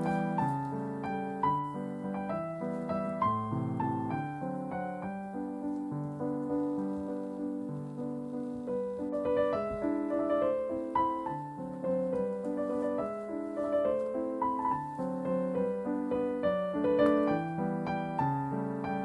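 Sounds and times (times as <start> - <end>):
piano music: 0.0 - 19.0.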